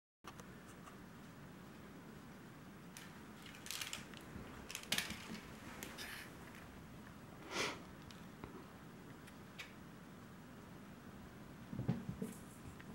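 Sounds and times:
crinkle ball rustling: 2.8s - 6.8s.

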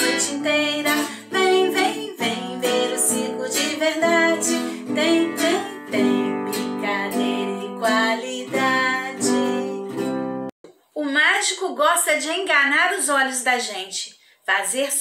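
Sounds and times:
person singing cheerful tune: 0.0s - 10.3s
strummed acoustic guitar: 0.0s - 10.5s.

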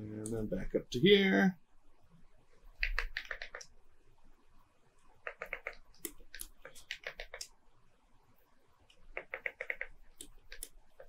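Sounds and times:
computer keyboard keys clicking: 2.8s - 3.7s, 5.2s - 7.5s, 9.2s - 11.0s.

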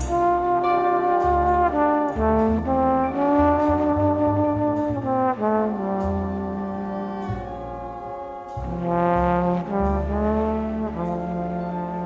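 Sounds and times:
low bass notes: 0.0s - 12.0s
slow jazz brass ballad: 0.0s - 12.0s.

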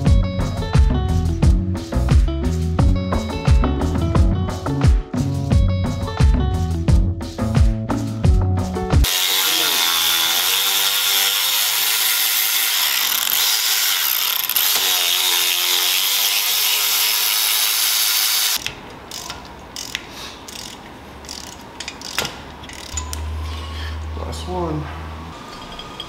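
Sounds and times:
electric ratchet running: 9.0s - 23.0s
hand ratchet clicking: 9.0s - 23.2s.

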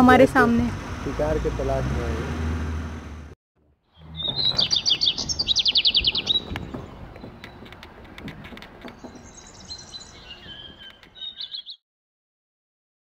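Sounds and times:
bird trilling and chirping: 3.9s - 11.8s.

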